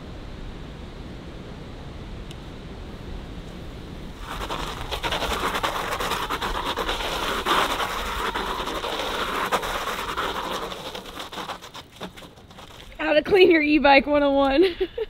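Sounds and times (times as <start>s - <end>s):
tyre spinning on wet asphalt: 4.2s - 13.4s.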